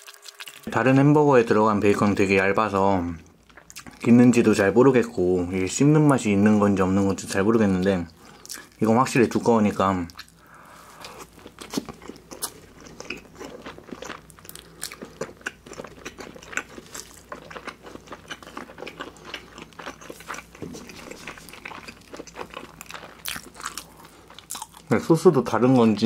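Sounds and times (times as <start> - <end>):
person chewing crunchy food: 0.0 - 0.7, 3.4 - 4.1, 8.1 - 8.8, 10.1 - 25.0.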